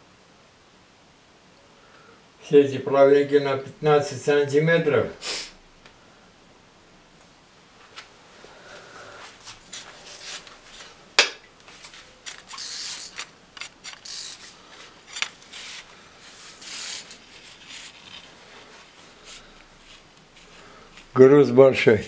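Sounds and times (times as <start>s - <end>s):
short hissy scrapes: 5.2s - 5.6s
fishing tackle clicking: 12.5s - 14.5s.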